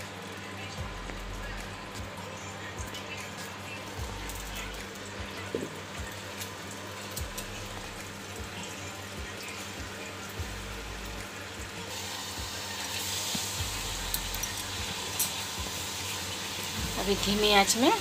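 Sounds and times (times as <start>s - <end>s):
low steady hum: 0.0s - 12.8s, 16.8s - 18.0s.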